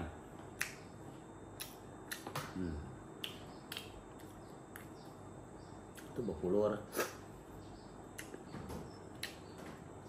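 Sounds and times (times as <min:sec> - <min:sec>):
faint sharp eating clicks: 0:00.5 - 0:00.9, 0:01.5 - 0:02.4, 0:03.2 - 0:05.1, 0:05.9 - 0:06.2, 0:08.0 - 0:08.5, 0:09.1 - 0:09.6.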